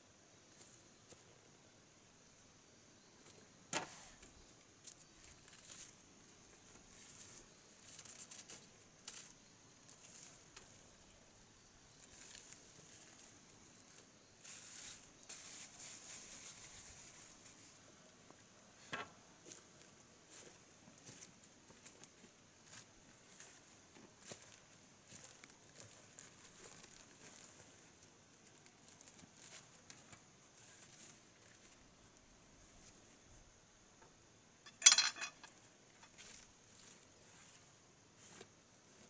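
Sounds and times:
rustling and scraping of bamboo slats: 3.2 - 11.0, 13.9 - 17.8, 34.7 - 38.5.

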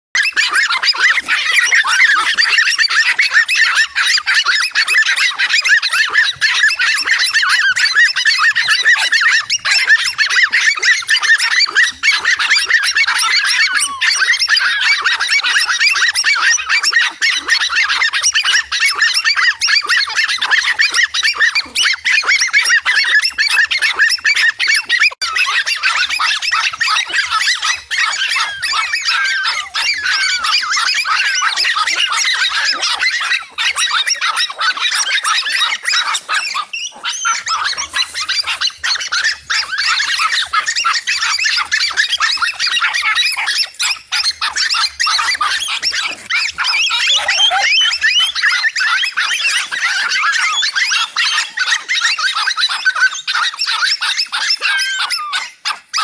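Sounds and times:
flock of birds honking and chattering: 24.5 - 53.4.

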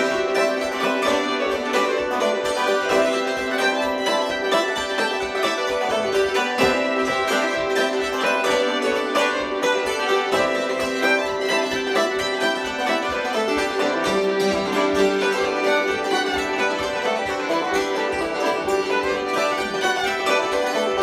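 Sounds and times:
banjo: 0.0 - 21.0
fiddle: 0.0 - 21.0
hammered dulcimers: 0.0 - 21.0.

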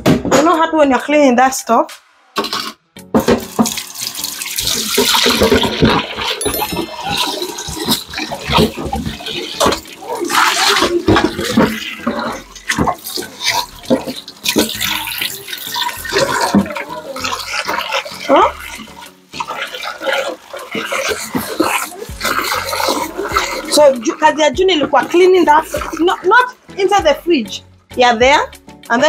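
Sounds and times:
dishes clinking and knocking: 2.4 - 18.9
tap water running into sink: 3.0 - 27.2.

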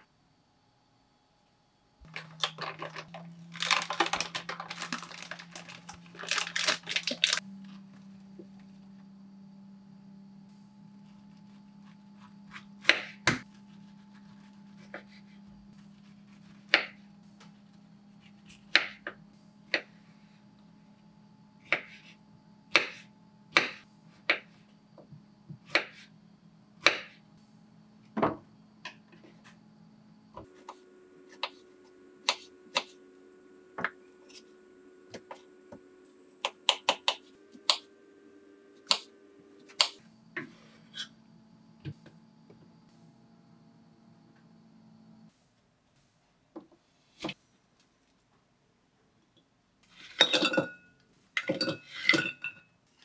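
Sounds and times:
faint steady hum: 0.0 - 53.0
knife cutting fruit on wooden board: 25.6 - 26.1.

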